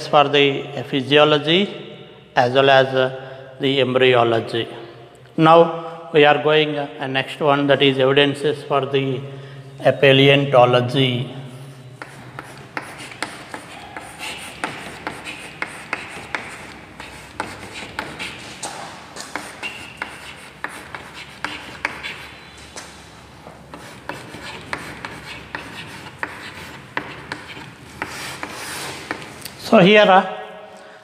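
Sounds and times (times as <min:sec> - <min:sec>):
chalk tapping on board: 0:12.0 - 0:22.4, 0:23.7 - 0:29.3
chalk scratching on chalkboard: 0:12.0 - 0:22.9, 0:23.7 - 0:29.3.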